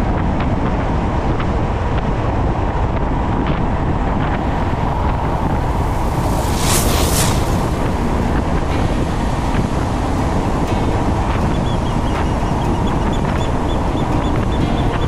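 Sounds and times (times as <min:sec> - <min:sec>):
road and wind noise: 0:00.0 - 0:15.0
hiss: 0:05.2 - 0:10.4.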